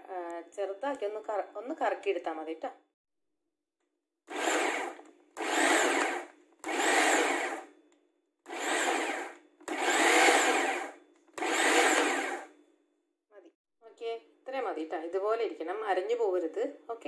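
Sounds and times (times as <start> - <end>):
food processor chopping: 4.3 - 7.7, 8.5 - 12.5.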